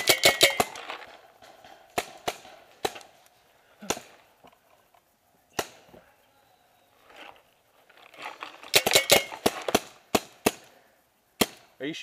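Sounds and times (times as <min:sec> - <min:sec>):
paintball marker shots: 0:01.4 - 0:03.1, 0:05.5 - 0:05.9, 0:08.7 - 0:10.7, 0:11.4 - 0:11.7.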